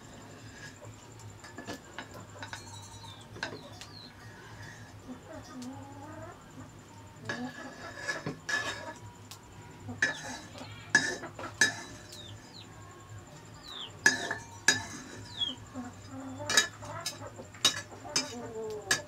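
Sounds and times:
metal spoon clinking on pot: 1.4 - 4.0, 10.0 - 12.3, 14.0 - 15.6, 16.5 - 19.0.

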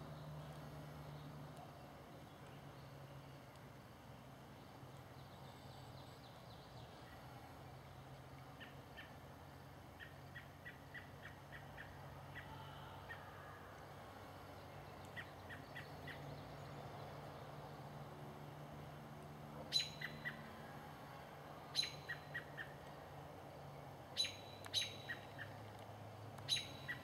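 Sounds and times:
low steady hum: 0.0 - 27.0
faint bird chirps: 19.7 - 20.5, 21.7 - 22.9, 23.7 - 25.6, 26.4 - 27.0.

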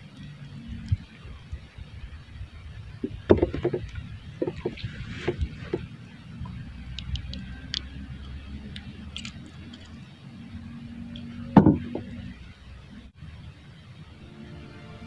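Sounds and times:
low steady rumble: 0.0 - 15.0
knock against wooden hull: 3.0 - 5.8, 11.6 - 12.1
small clicks in canoe: 3.0 - 10.0.

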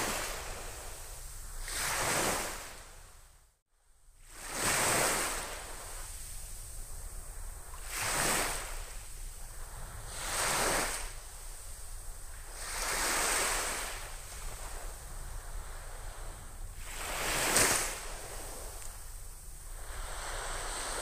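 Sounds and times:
small waves washing up a beach: 0.0 - 3.2, 4.2 - 21.0
steady low rumble: 8.7 - 10.2.

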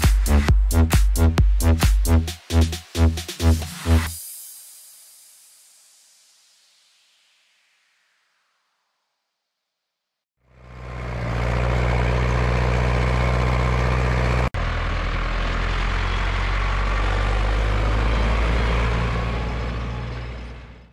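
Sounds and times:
tractor diesel engine running: 10.5 - 20.9.

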